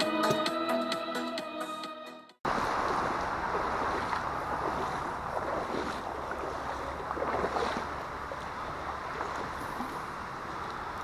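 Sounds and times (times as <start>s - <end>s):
flowing creek water: 2.4s - 11.0s.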